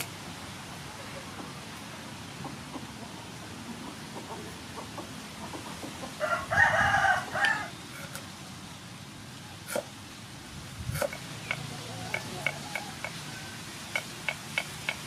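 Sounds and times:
rooster crowing: 0:06.2 - 0:07.8, 0:12.0 - 0:14.0
knife tapping on chopping block: 0:11.0 - 0:13.2, 0:14.0 - 0:15.0.

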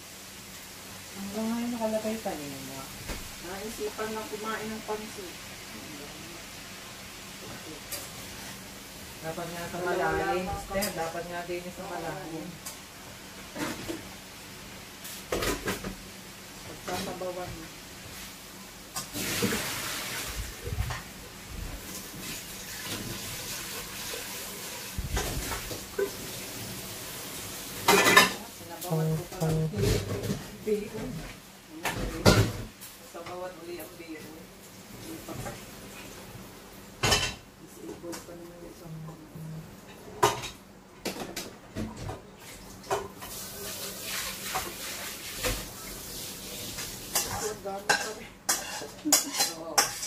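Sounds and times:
steady hiss: 0:17.8 - 0:28.9
faint steady hiss: 0:42.4 - 0:49.4
utensils scraping in a colander: 0:43.2 - 0:50.0.

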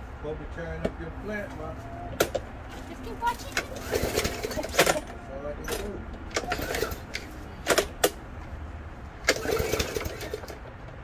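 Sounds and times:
lawn mower cutting grass: 0:03.5 - 0:05.0, 0:06.3 - 0:07.4, 0:09.2 - 0:10.6.

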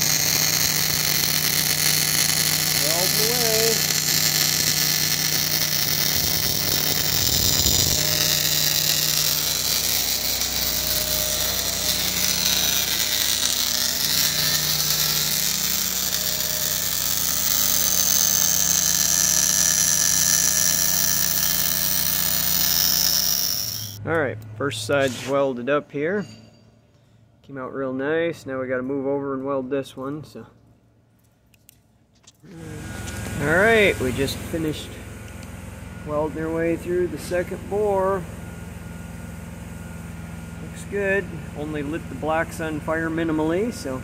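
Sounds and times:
small motor whine: 0:00.0 - 0:24.0, 0:32.5 - 0:36.8
welding arc hiss: 0:00.0 - 0:24.0.

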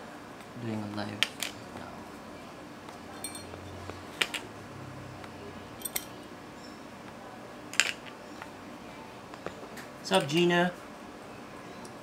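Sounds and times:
metal parts clicking and clinking: 0:03.2 - 0:03.5, 0:05.8 - 0:06.1.

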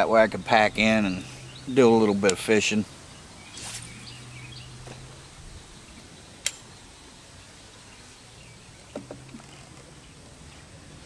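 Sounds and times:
low hum: 0:03.0 - 0:10.2
faint bird chirps: 0:03.1 - 0:10.2
sharp click: 0:06.4 - 0:06.7.

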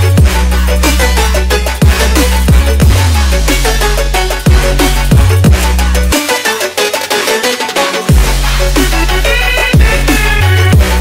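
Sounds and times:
electronic dance track: 0:00.0 - 0:11.0
high synth chords: 0:00.0 - 0:11.0
deep bass hits: 0:01.8 - 0:05.7.

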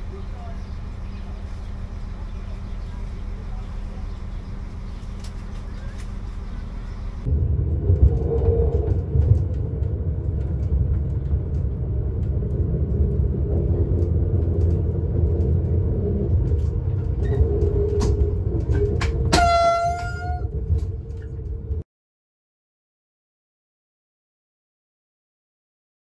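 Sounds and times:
train rumble with clicks: 0:00.0 - 0:21.8
train horn blast: 0:19.3 - 0:20.5.

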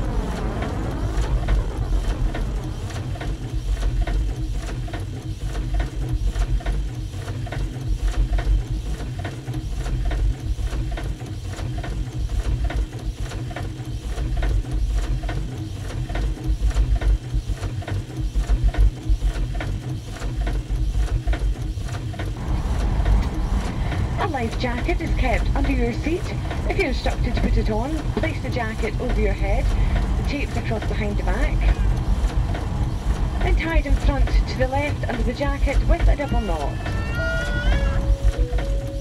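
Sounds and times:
heavy pulsing low thump: 0:00.0 - 0:05.0, 0:22.3 - 0:37.0
mechanical strokes: 0:20.9 - 0:39.0.

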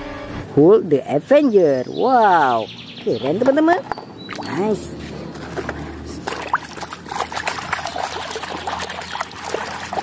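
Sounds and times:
water sloshing in a plastic tub: 0:03.2 - 0:10.0.

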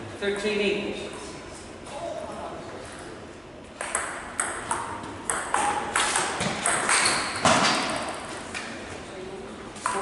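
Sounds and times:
table tennis ball clicking and bouncing: 0:03.8 - 0:08.2.

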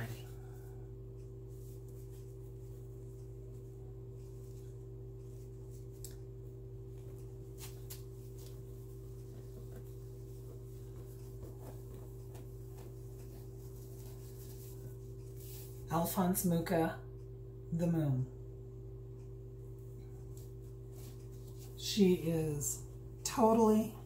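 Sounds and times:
steady low hum: 0:00.0 - 0:24.0
rustling handling noises: 0:01.2 - 0:15.9, 0:19.8 - 0:21.9.

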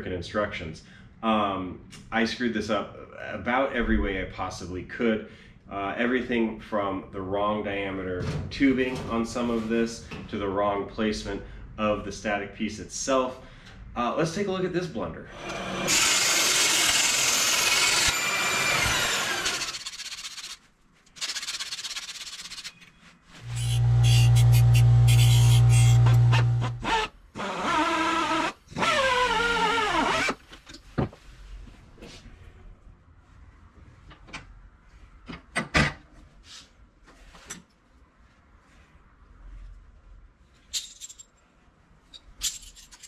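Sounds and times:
band saw motor spinning down: 0:15.4 - 0:19.9, 0:23.4 - 0:27.1
quiet rubbing and handling: 0:20.5 - 0:26.0, 0:30.5 - 0:32.6, 0:36.2 - 0:40.7
loud steady low hum: 0:23.4 - 0:26.9.

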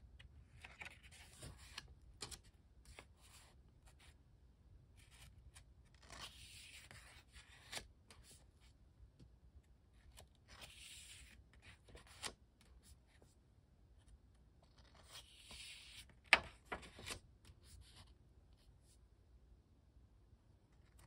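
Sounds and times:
paper pages rustling: 0:00.5 - 0:03.5, 0:14.7 - 0:17.2.

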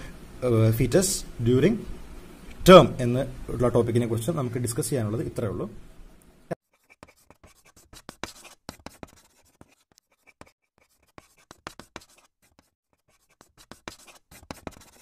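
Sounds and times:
chalk scratching on blackboard: 0:06.7 - 0:15.0.

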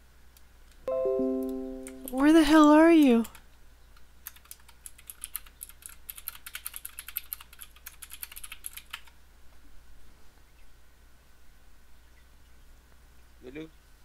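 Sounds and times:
computer keyboard typing: 0:01.4 - 0:03.4, 0:04.2 - 0:09.2.

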